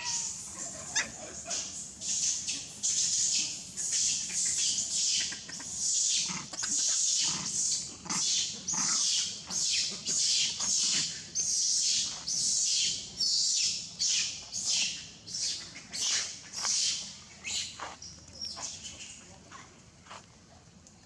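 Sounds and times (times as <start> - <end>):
baby monkey screaming: 0.0 - 1.6.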